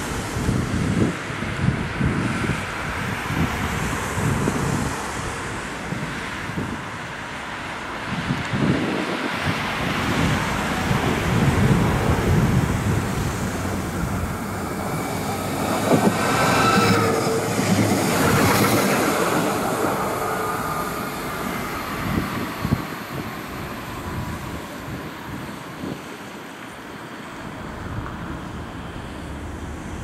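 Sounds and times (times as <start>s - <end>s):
tram wheels rumbling on rails: 0.0s - 30.0s
thin whine: 9.4s - 30.0s.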